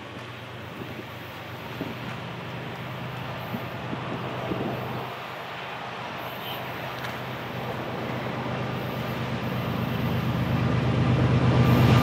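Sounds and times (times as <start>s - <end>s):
diesel locomotive engine drone: 0.0s - 12.0s.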